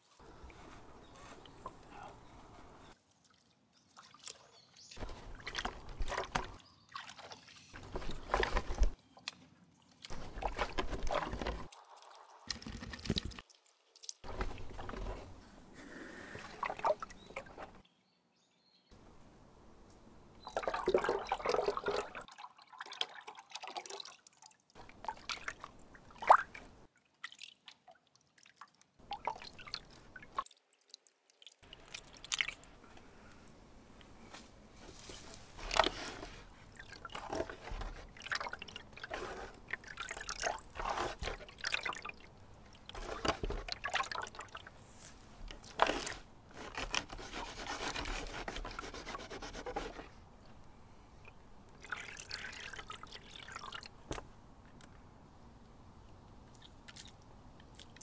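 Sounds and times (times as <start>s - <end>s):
water splashing in a vat: 3.2s - 9.0s, 10.0s - 15.1s, 16.4s - 17.8s, 20.5s - 32.7s, 35.5s - 44.8s, 51.8s - 54.2s.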